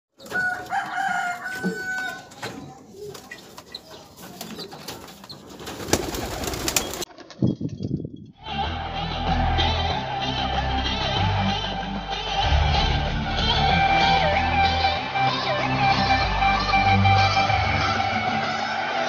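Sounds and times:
wire cage rattling: 0.2 - 7.0.

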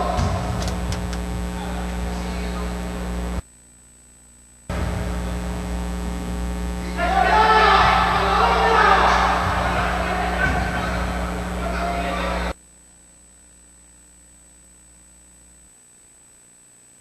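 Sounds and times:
voices: 0.0 - 3.4, 4.7 - 12.6
electrical mains hum: 0.0 - 17.0.

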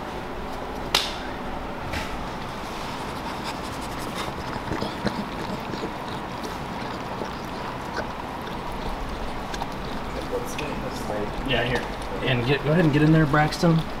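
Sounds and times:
dog licking puppy: 2.8 - 14.0.

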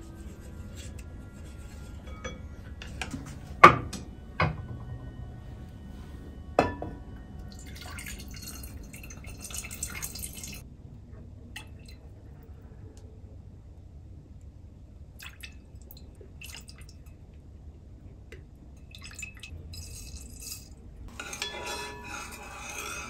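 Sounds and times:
liquid pouring into pot: 7.4 - 10.6
utensils knocking ceramic pots: 19.8 - 23.0.

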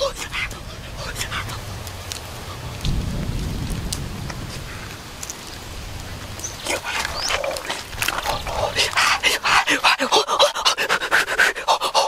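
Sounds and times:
sharp crackles: 0.0 - 9.3
wind rumble on microphone: 0.0 - 9.8.

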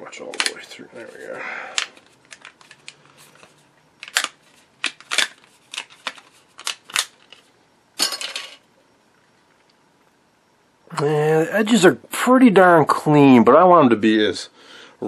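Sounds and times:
plastic sheet cracking and clicking: 4.0 - 7.4.

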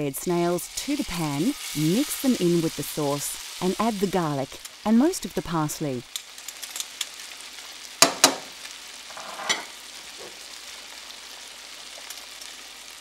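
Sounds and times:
food sizzling in a frying pan: 0.0 - 13.0
utensil knocking on a pan: 8.0 - 8.5
utensil scraping a pan: 9.1 - 10.4.

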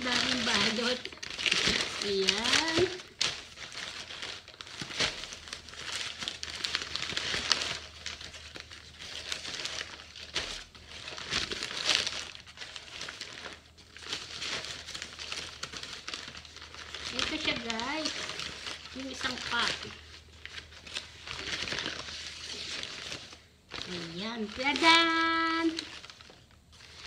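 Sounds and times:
newspaper crinkling and rustling: 0.0 - 27.0.

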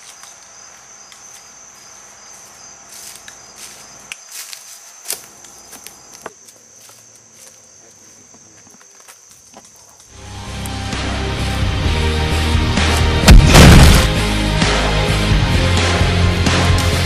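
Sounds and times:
insects trilling: 0.0 - 10.2
footsteps crunching leaf litter: 1.3 - 9.7.

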